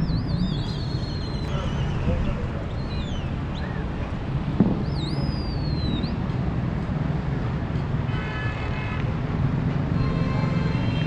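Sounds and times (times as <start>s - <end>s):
bird whistled swooping call: 0.0s - 3.8s, 4.8s - 6.2s
city traffic hum: 0.0s - 11.0s
sharp thump: 4.6s - 4.9s
vehicle horn: 8.1s - 9.1s, 9.9s - 11.0s.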